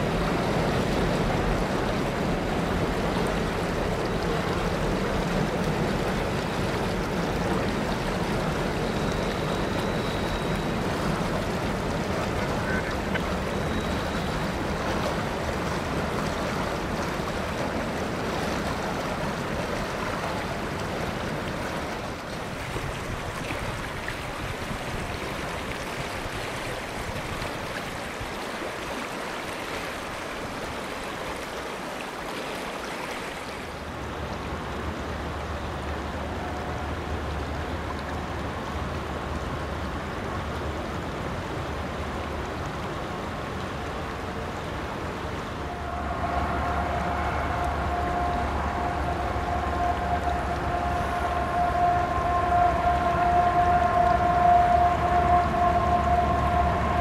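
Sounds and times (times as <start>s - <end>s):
river water rushing over gravel: 0.0s - 57.0s
steady low rumble: 44.9s - 57.0s
faint level tones: 45.4s - 57.0s.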